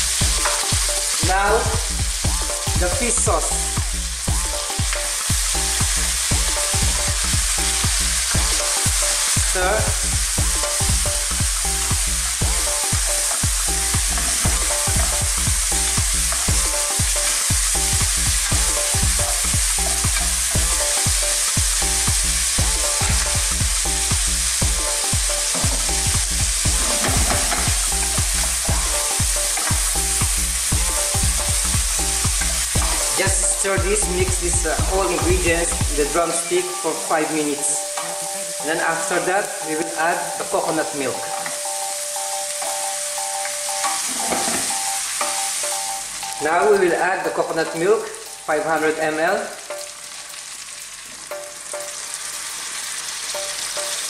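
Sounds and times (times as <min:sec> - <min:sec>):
food sizzling in hot oil: 0:00.0 - 0:54.0
wooden spatula scraping a pan: 0:26.7 - 0:28.0, 0:43.9 - 0:44.7.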